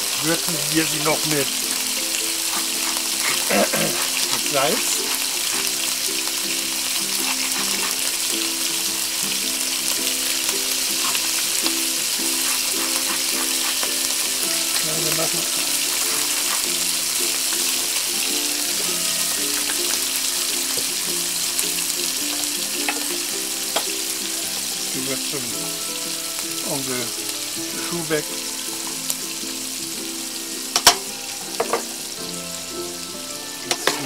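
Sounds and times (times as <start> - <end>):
background music: 0.0 - 34.0
prawns sizzling in hot oil: 0.0 - 34.0.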